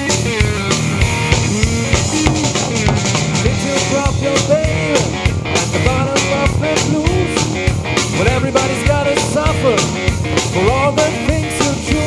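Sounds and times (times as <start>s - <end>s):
drum kit steady beat: 0.0s - 12.0s
electric bass: 0.0s - 12.0s
electric guitar bending notes: 0.0s - 12.0s.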